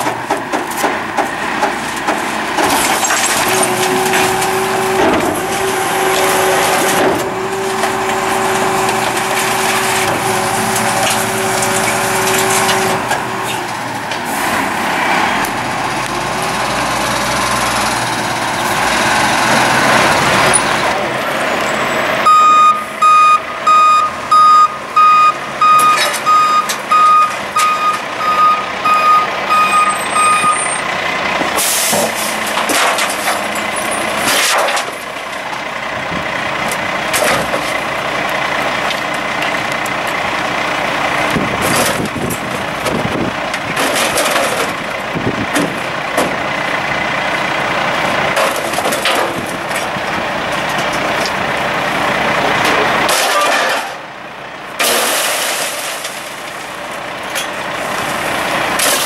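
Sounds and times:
garbage truck diesel engine: 0.0 - 59.0
reversing beeper: 21.5 - 30.8.

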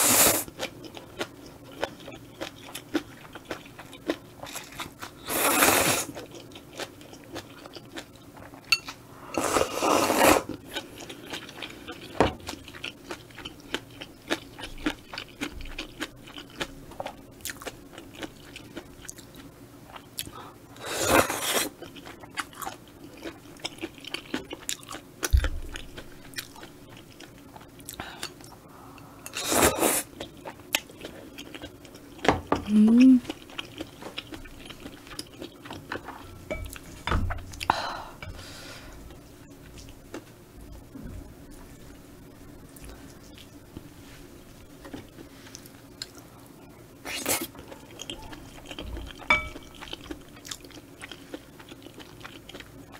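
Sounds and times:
chewing with wet clicks: 0.5 - 5.2, 6.1 - 9.0, 10.6 - 20.4, 21.8 - 28.6, 30.2 - 32.3, 33.2 - 37.0, 47.6 - 52.9.

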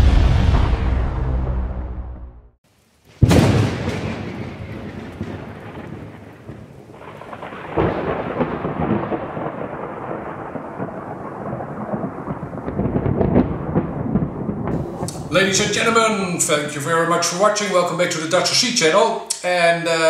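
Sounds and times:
rain hissing: 2.6 - 13.6, 14.7 - 20.0
thunder rumbling: 3.2 - 18.6.

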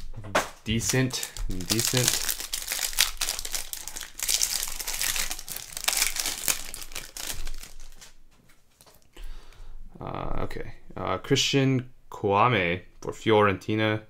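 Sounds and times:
plastic wrapper crinkling: 0.7 - 8.2.

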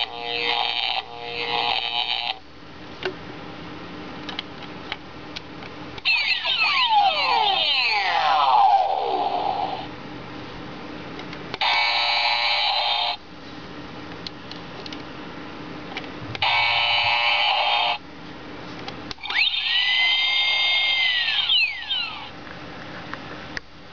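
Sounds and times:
electronic tones sweeping: 6.1 - 9.9, 19.3 - 22.3.

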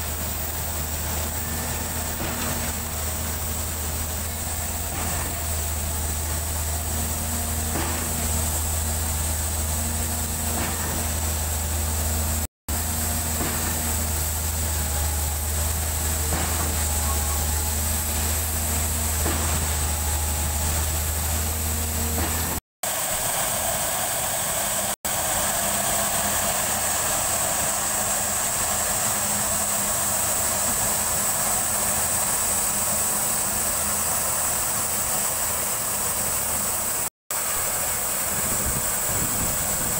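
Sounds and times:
pump knocking: 0.0 - 23.4
concrete pump engine humming: 0.0 - 39.9.

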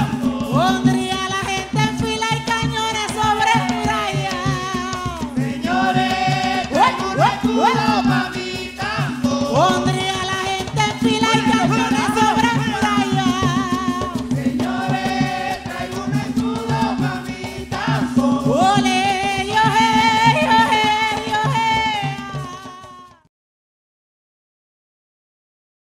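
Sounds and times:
women's chorus singing: 0.0 - 1.7, 2.6 - 22.4
hand drums: 0.0 - 23.3
woman singing lead: 0.0 - 23.3.

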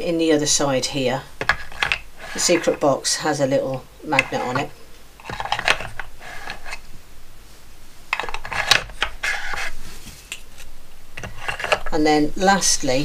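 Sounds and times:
wood scraping on wood: 1.4 - 2.9, 3.6 - 6.9, 8.2 - 12.0.

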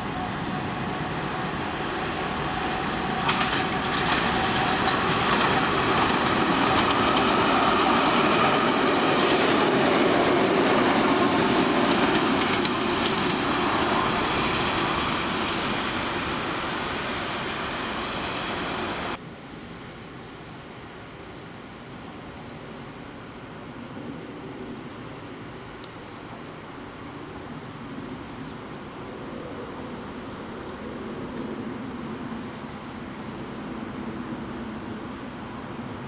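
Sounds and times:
diesel locomotive engine drone: 0.0 - 19.2
train wheels clattering on rail joints: 1.3 - 17.7.

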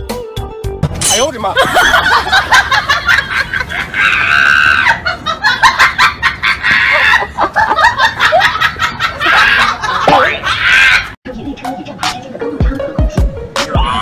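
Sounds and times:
chicken-like clucking and cackling: 3.4 - 11.2.

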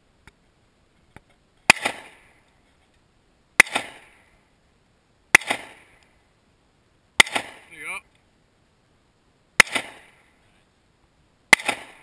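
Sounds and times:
pistol shots with echo: 1.7 - 2.2, 3.6 - 4.1, 5.4 - 5.9, 7.2 - 7.7, 9.6 - 10.2, 11.5 - 12.0.

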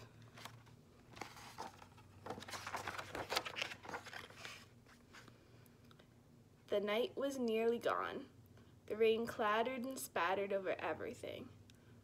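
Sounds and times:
book page turning: 0.2 - 5.3.

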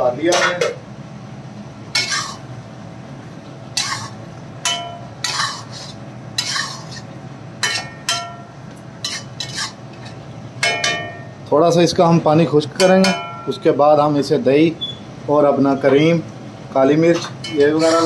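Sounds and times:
metal spoon scraping metal pot: 2.0 - 2.4, 3.8 - 8.4, 9.0 - 10.2, 17.5 - 18.0.

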